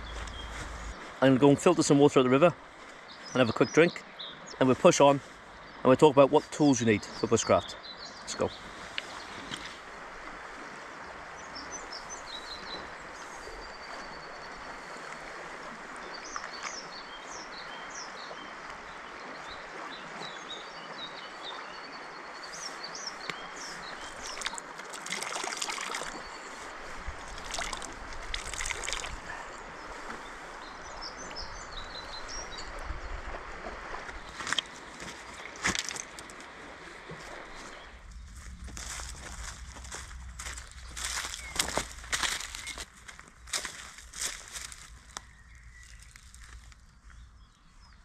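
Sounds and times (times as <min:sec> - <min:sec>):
birds chirping: 0:00.0 - 0:09.7, 0:10.9 - 0:48.0
river babbling over stones: 0:21.7 - 0:45.2.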